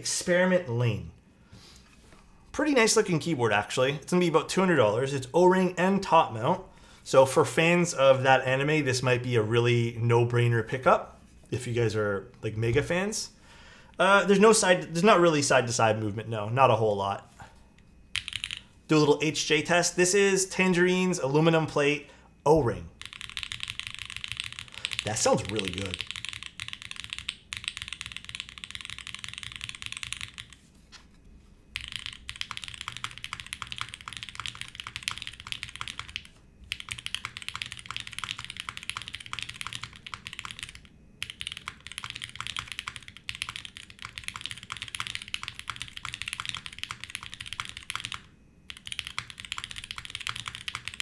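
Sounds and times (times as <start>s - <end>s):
fast mechanical keyboard typing: 18.2s - 18.7s, 22.7s - 30.7s, 31.7s - 51.0s.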